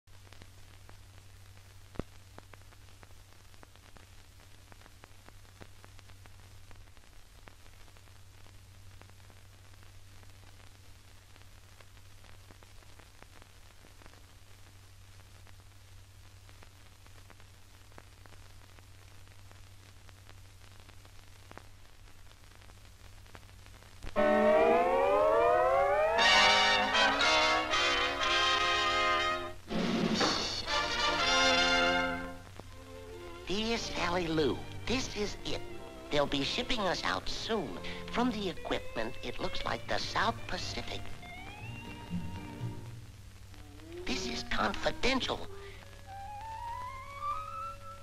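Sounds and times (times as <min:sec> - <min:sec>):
faint clicks and pops: 0:00.1 - 0:24.2
low hum and hiss: 0:00.1 - 0:48.0
low hum: 0:24.1 - 0:28.2.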